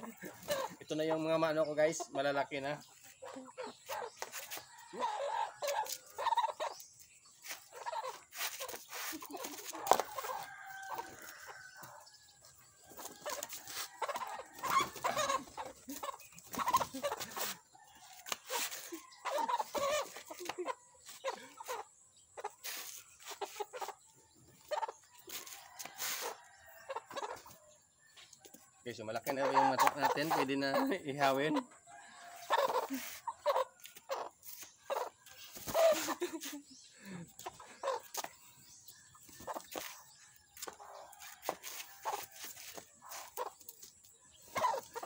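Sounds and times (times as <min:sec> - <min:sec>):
chickens clucking: 0:00.0 - 0:45.0
rooster crowing: 0:10.0 - 0:12.2, 0:31.9 - 0:33.2.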